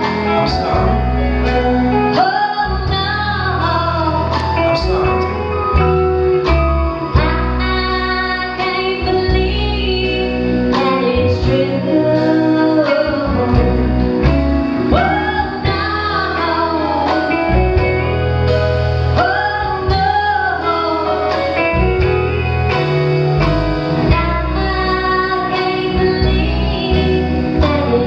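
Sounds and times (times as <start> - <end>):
band with guitar: 0.0 - 28.0
woman singing into a microphone: 1.9 - 5.8, 7.0 - 18.4, 19.1 - 22.1, 24.0 - 28.0.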